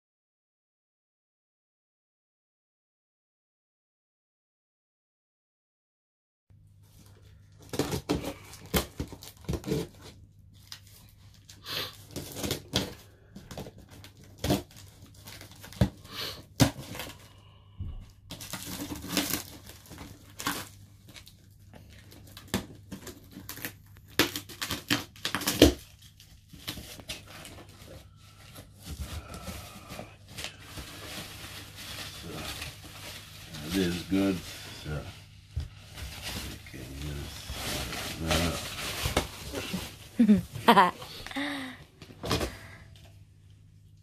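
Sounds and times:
packing tape ripping: 0:13.9 - 0:17.2, 0:18.3 - 0:27.7
wrapping sheet rustling: 0:24.3 - 0:41.7
cardboard crackling: 0:35.7 - 0:40.8.

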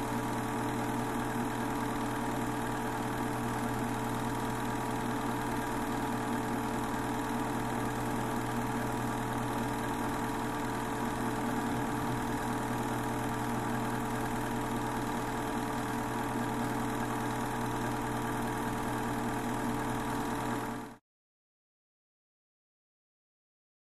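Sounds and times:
machine droning: 0:06.8 - 0:18.0.

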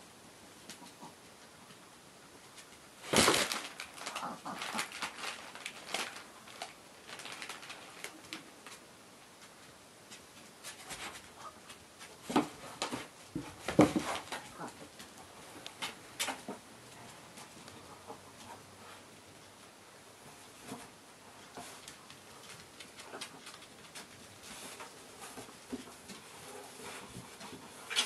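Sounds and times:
pets rustling and scratching: 0:02.4 - 0:19.5, 0:20.2 - 0:28.0.

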